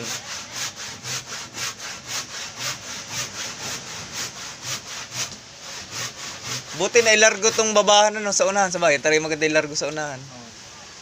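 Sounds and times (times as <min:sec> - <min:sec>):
hand saw cutting wood: 0:00.0 - 0:08.1.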